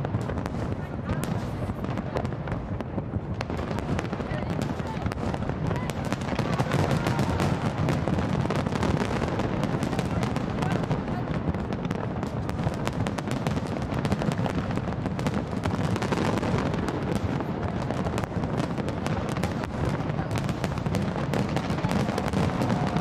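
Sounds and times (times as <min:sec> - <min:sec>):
fireworks bursting and crackling: 0:00.0 - 0:23.0.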